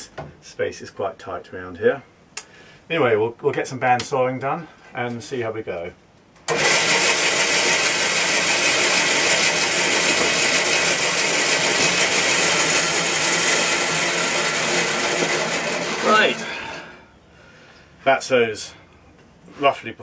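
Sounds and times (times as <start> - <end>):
bandsaw cutting wood: 6.5 - 17.0.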